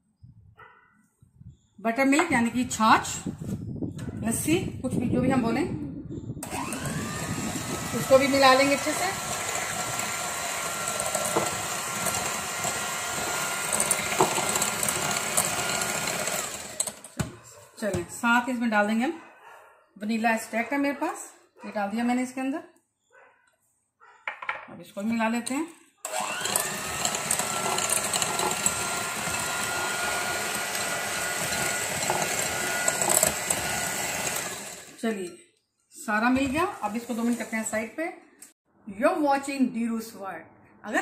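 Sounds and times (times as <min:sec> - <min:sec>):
electric hand mixer whining: 0:06.4 - 0:17.3, 0:26.1 - 0:35.0, 0:36.4 - 0:37.9
wire beaters whisking batter: 0:06.6 - 0:17.2, 0:25.0 - 0:35.2, 0:36.1 - 0:37.9.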